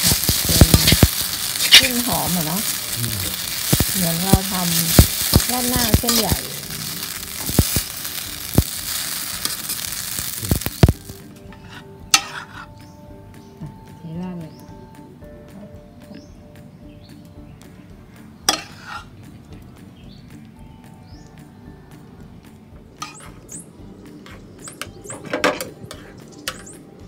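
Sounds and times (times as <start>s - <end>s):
metal tongs scraping a pan: 0.0s - 12.7s, 18.5s - 19.1s, 23.0s - 23.5s, 24.2s - 26.7s
spaghetti sizzling in a wok: 0.0s - 12.7s, 18.5s - 19.1s, 23.0s - 24.4s.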